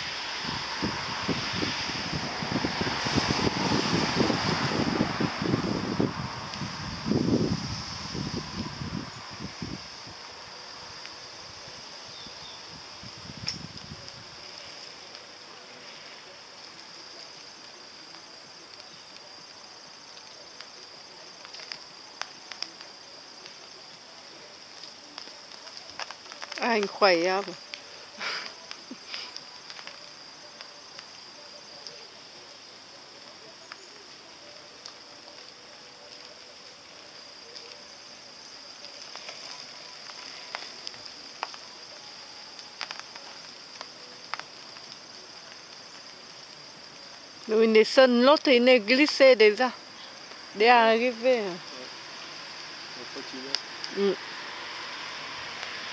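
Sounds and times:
sharp rain ticks: 0.0 - 55.9
steady high-pitched hiss: 0.0 - 55.9
faint ticks: 13.4 - 24.0, 38.7 - 47.5.

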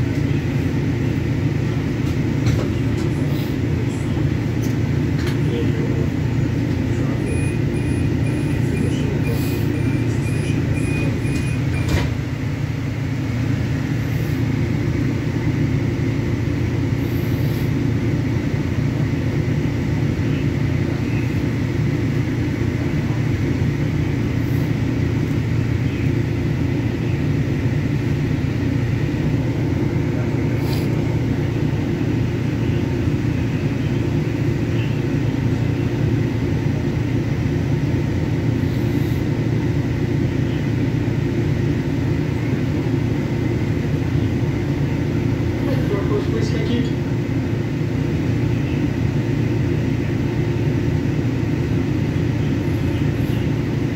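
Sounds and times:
train equipment low hum: 0.0 - 53.9.

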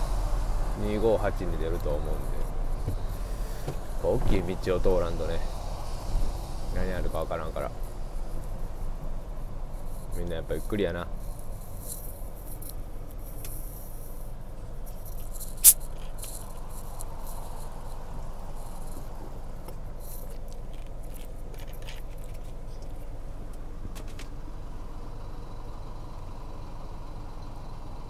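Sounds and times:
car cabin rumble: 0.0 - 24.6.

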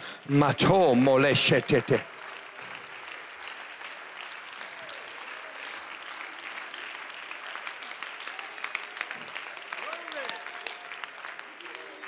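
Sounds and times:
congregation applauding: 0.0 - 12.0.

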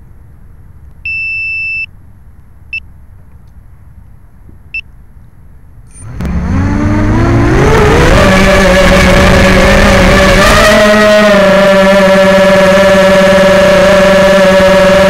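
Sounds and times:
drone beeping: 1.0 - 1.9, 5.9 - 6.4
drone motors whirring: 5.9 - 11.0.

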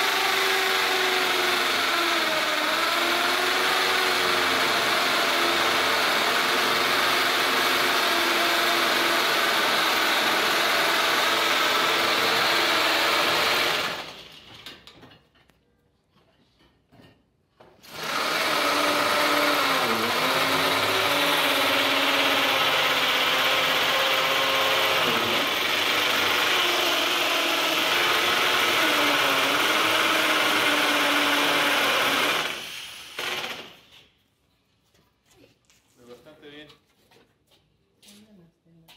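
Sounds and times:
impact drill boring into wall: 0.0 - 14.7, 17.8 - 34.0.

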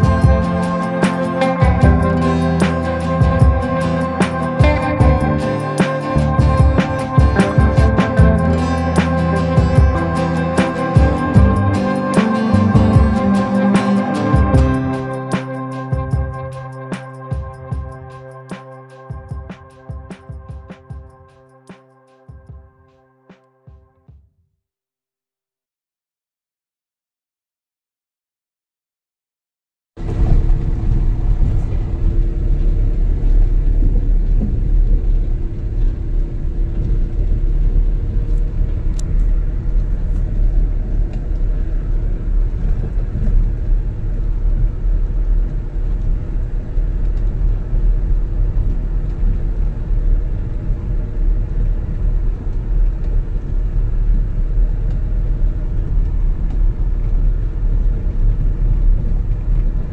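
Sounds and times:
vehicle engine and road rumble: 0.0 - 17.8, 30.0 - 59.9.

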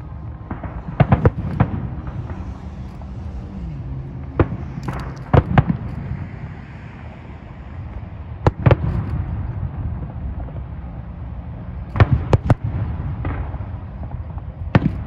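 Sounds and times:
distant fireworks bangs: 0.0 - 6.6, 8.2 - 15.0
steady low rumble: 0.0 - 15.0.

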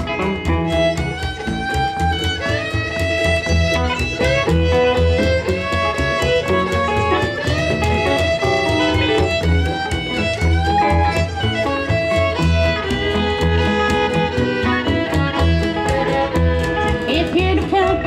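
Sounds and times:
country band playing: 0.0 - 18.0
electric guitar: 0.0 - 18.0
fiddle: 0.0 - 18.0
upright bass thumping: 0.0 - 18.0.

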